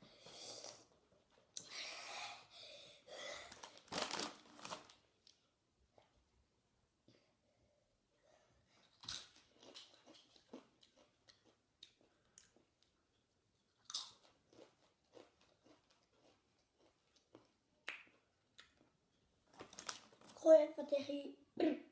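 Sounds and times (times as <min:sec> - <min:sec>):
tortilla chip crunching: 0:09.0 - 0:12.6, 0:13.7 - 0:17.5.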